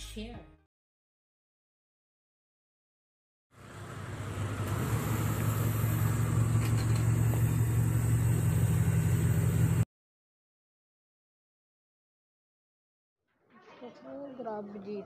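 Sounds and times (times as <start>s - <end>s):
van low mechanical hum: 3.6s - 9.9s.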